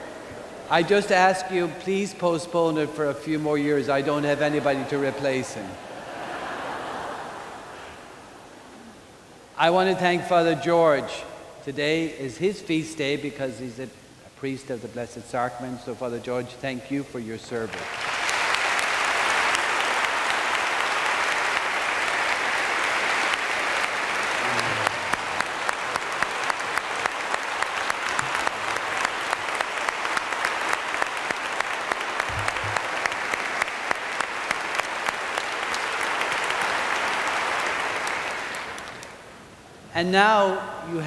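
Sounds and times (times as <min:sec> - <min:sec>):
congregation applauding: 0:17.5 - 0:39.4
sharp nearby claps: 0:17.7 - 0:39.2.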